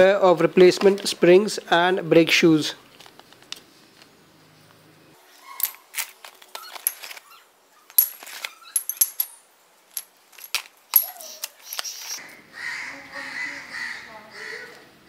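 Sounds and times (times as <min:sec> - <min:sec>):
plastic bag and cardboard rustling: 0:02.8 - 0:04.2
metal tools clinking on concrete: 0:05.5 - 0:12.2.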